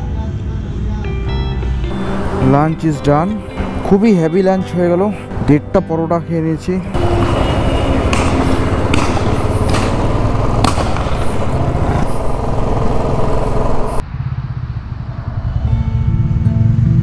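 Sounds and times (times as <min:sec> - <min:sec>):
motorcycle engine running: 0:01.9 - 0:05.4, 0:06.8 - 0:14.0
sharp knocks: 0:07.0 - 0:14.0.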